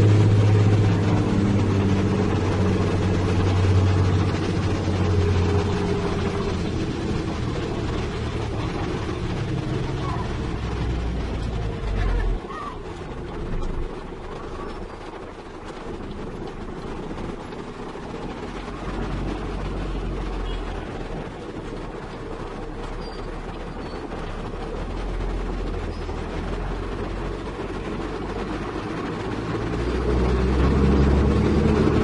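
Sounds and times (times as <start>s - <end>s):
truck diesel engine drone: 0.0s - 32.0s.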